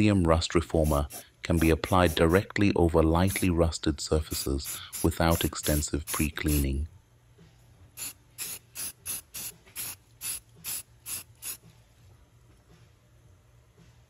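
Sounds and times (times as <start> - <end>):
aerosol spray hissing bursts: 0.7 - 2.4, 3.3 - 3.5, 4.3 - 6.7, 8.0 - 11.7.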